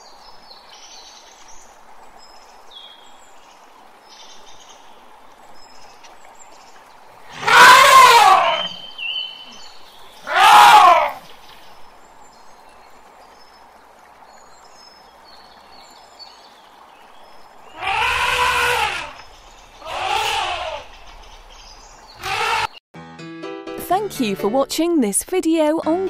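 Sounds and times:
elephants trumpeting: 7.3 - 8.8, 10.2 - 11.2, 17.7 - 19.2, 19.8 - 21.1, 22.2 - 22.8.

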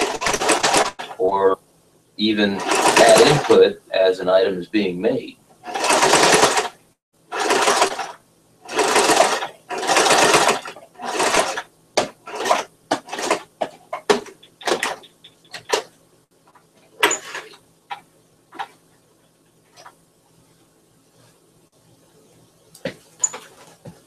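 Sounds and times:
sewing machine stitching: 0.0 - 1.2, 2.4 - 3.7, 5.6 - 15.9, 17.0 - 17.6.

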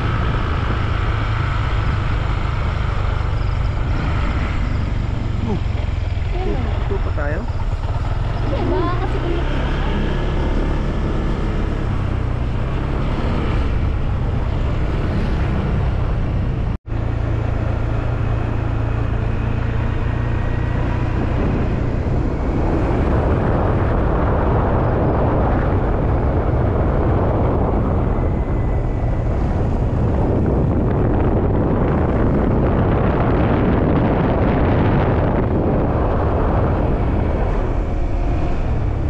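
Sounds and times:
vehicle engine running: 0.0 - 39.0
wind rushing over microphone: 0.0 - 39.0.

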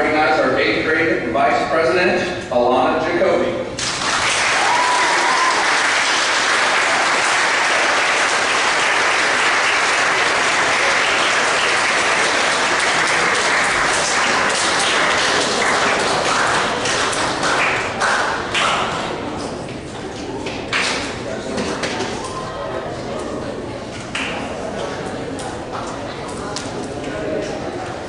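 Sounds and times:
audience applauding: 3.8 - 19.0.

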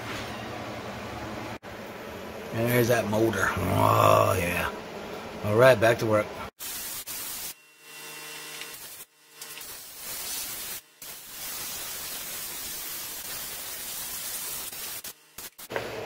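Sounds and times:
compressed air gun hissing: 6.6 - 7.6, 8.7 - 15.7.

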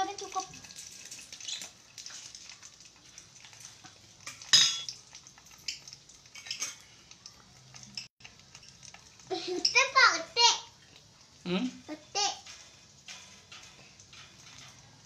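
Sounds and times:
metal spoon clinking on metal: 4.2 - 7.0.

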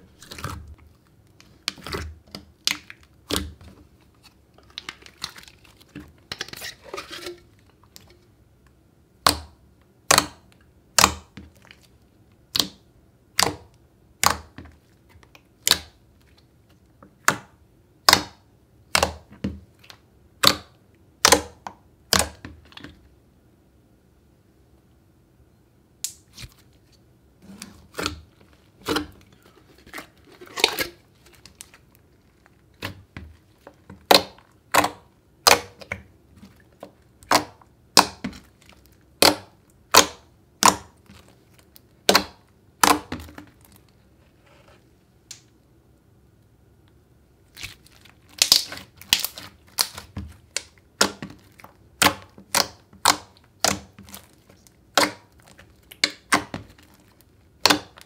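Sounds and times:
slime squeezed with wet pops: 47.5 - 58.0.

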